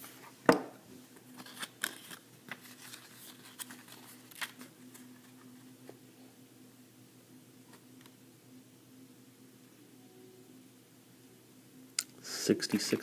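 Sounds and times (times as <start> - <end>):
faint steady hum: 0.0 - 13.0
paper pages flipping and rustling: 1.2 - 5.6.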